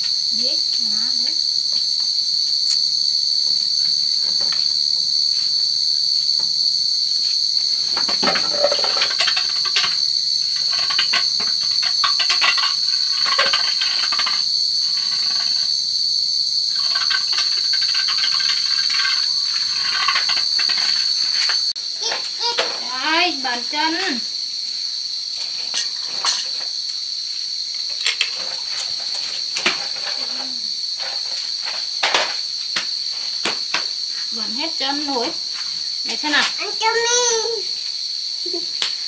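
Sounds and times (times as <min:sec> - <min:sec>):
high-pitched insect chorus: 0:00.0 - 0:39.0
scattered clicks and knocks: 0:07.9 - 0:15.7.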